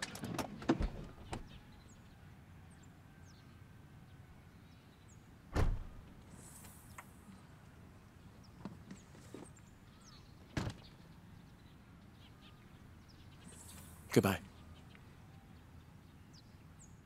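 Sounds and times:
car door latch clicks: 5.6 - 6.0
car door shutting thump: 5.6 - 6.0.

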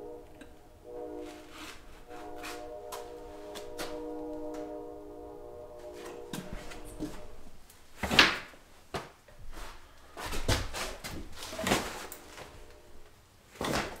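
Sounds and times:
cloth jacket rustling and swishing: 5.8 - 8.0, 9.4 - 13.0.

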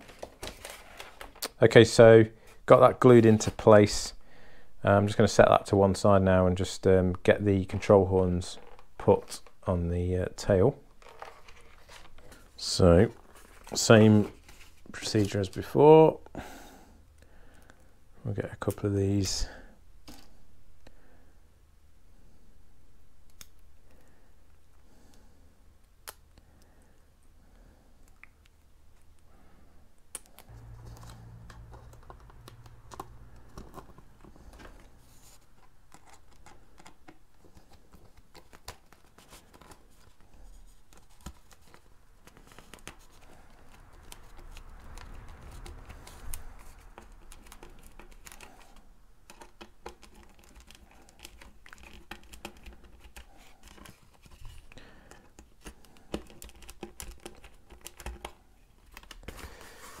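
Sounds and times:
clicks taps and rustling of hands: 30.0 - 59.6.

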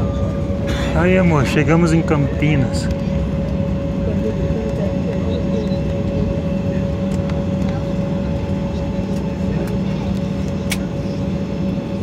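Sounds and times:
jet engines idling: 0.0 - 12.0
brief click: 10.6 - 10.9.

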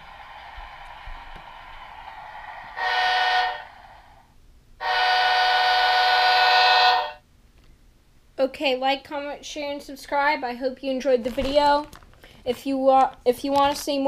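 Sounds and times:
model locomotive horn blasts: 2.8 - 3.8, 4.8 - 7.2.

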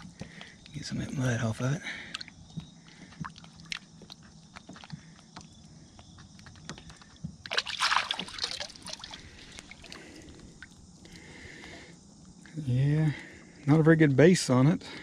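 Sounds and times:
water splashing and sloshing: 0.0 - 11.9.

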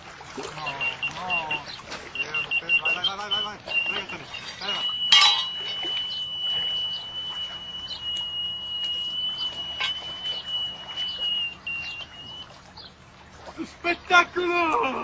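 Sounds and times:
bite alarm high tone: 0.6 - 12.4.

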